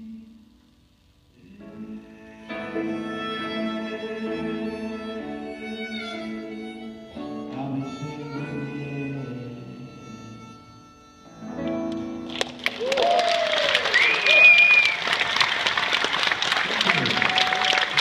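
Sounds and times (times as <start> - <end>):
piano: 0.0 - 15.0
harmonica slow solo: 1.4 - 12.9.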